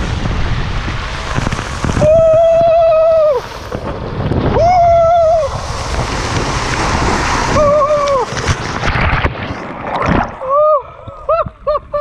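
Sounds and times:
water rushing and spraying: 0.0 - 11.3
wind noise: 0.0 - 12.0
splash into water: 5.4 - 10.6.

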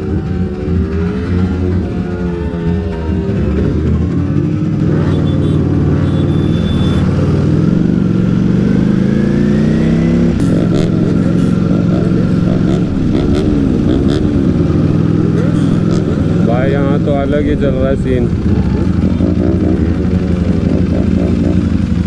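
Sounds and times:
motorcycle engine accelerating: 0.0 - 22.0.

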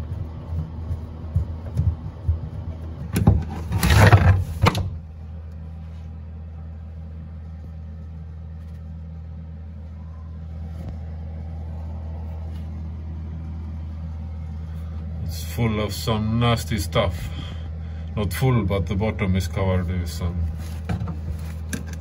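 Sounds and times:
steady low hum: 0.0 - 22.0
wooden hatch scraping: 3.0 - 5.0.

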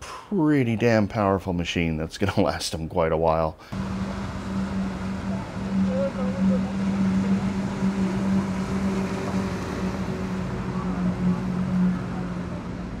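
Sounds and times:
boat engine humming: 3.7 - 13.0
outdoor noise: 3.7 - 13.0.

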